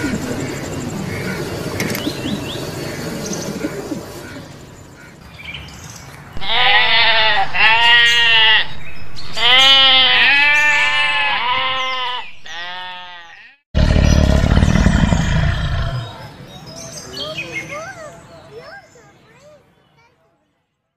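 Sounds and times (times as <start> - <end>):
sheep bleating: 6.4 - 8.7, 9.3 - 13.6
tiger cub growling: 13.8 - 16.3.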